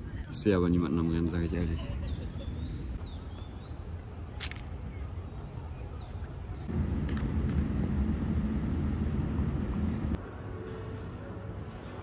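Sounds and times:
low background rumble: 6.6 - 10.2.

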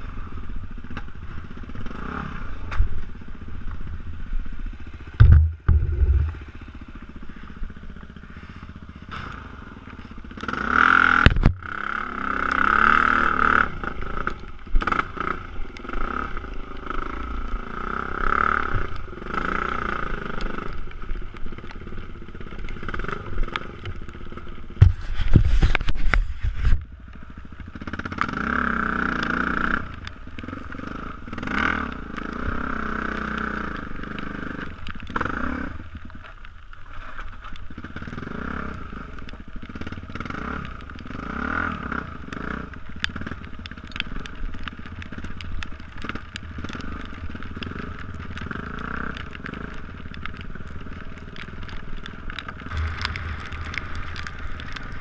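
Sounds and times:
dirt bike engine revving: 4.6 - 20.8, 27.7 - 35.8, 46.0 - 55.0.

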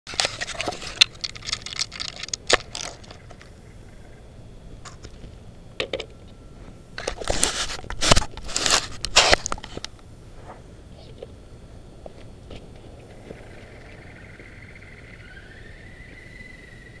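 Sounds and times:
scraping crunching handling noise: 0.1 - 3.5, 4.8 - 11.3.

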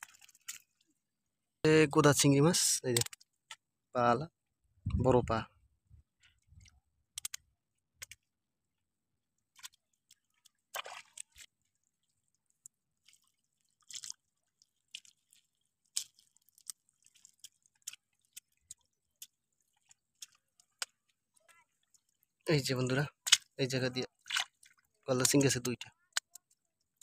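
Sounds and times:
wet net rustle: 12.9 - 20.6
fish flipping on wet net: 13.0 - 20.9, 24.2 - 24.8.

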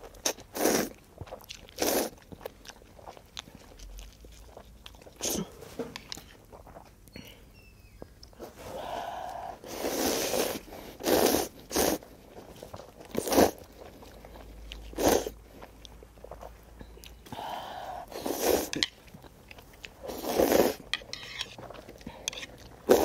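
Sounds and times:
chewing: 0.0 - 7.2, 8.0 - 23.0
person slurping noodles: 0.5 - 0.9, 1.8 - 2.2, 8.4 - 12.0, 13.2 - 13.6, 14.9 - 15.4, 17.4 - 18.8, 20.0 - 21.5, 22.2 - 23.0.

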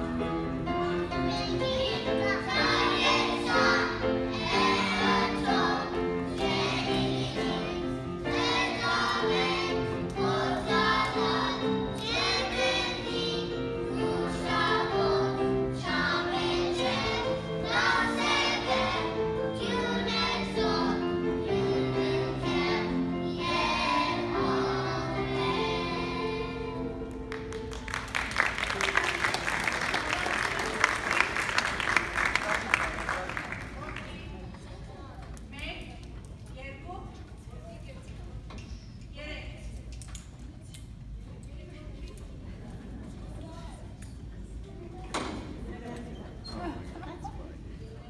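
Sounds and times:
children's choir singing: 0.1 - 31.6.

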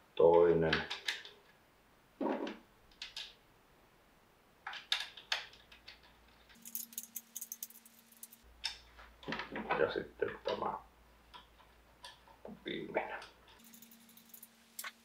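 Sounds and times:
small metal parts clicking and tapping: 4.6 - 8.8, 13.2 - 15.0.

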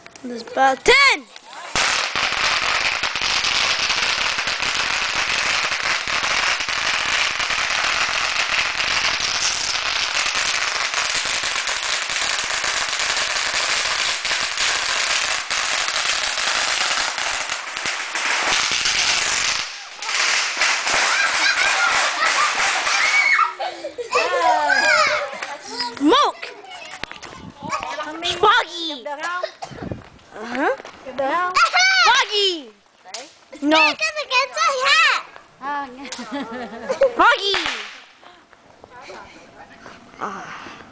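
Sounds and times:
scattered pops: 0.0 - 23.2, 37.4 - 38.2
firework crackling: 1.4 - 23.7, 30.8 - 38.3
voices: 21.0 - 40.9.

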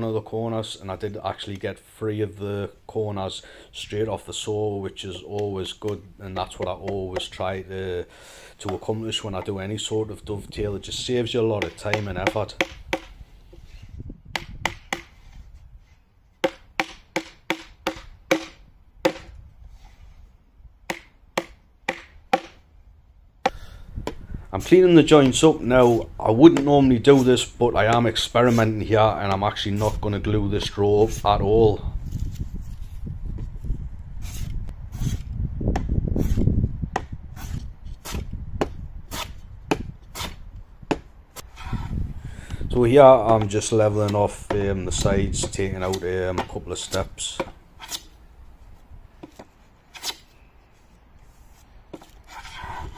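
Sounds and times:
hammer knocking wooden joint: 14.4 - 15.1, 16.4 - 19.3, 20.9 - 22.6.

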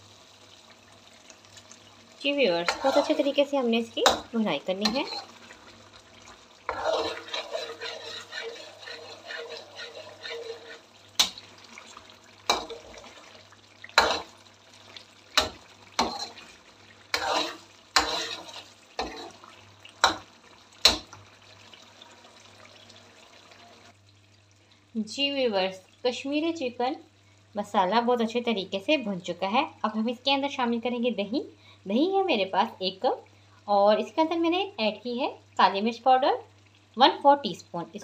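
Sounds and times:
food sizzling in a pan: 0.0 - 38.0
metal ladle clanking against pan: 2.7 - 3.2, 4.0 - 5.3, 17.1 - 19.4.

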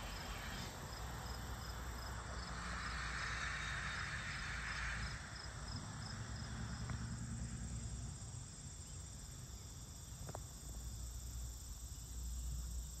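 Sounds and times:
crickets chirring: 0.0 - 13.0.

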